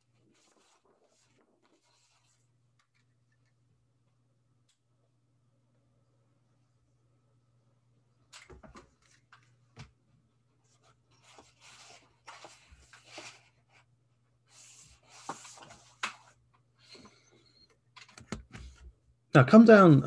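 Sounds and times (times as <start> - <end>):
paper rustling and scraping: 0.0 - 3.0, 10.7 - 13.9, 14.5 - 16.4
faint steady hum: 0.0 - 20.0.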